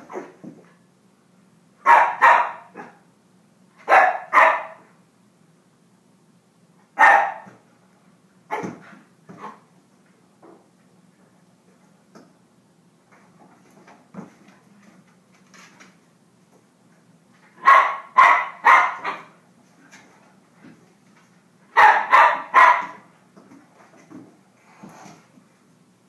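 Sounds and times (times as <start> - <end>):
puppy barking: 1.8 - 3.0, 3.8 - 4.9, 7.0 - 7.6, 8.5 - 8.8, 17.6 - 19.4, 21.8 - 23.0.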